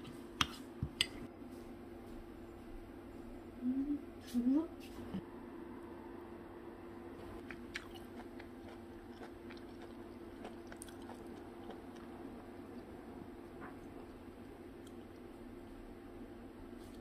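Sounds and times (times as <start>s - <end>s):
steady low hum: 0.0s - 17.0s
person chewing crunchy food: 7.4s - 13.0s.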